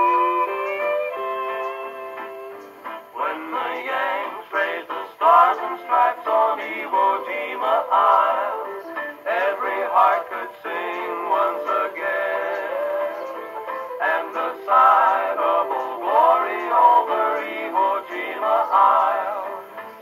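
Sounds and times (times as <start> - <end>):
string band playing: 0.0 - 20.0
male vocal group singing: 3.2 - 13.3, 14.0 - 19.8.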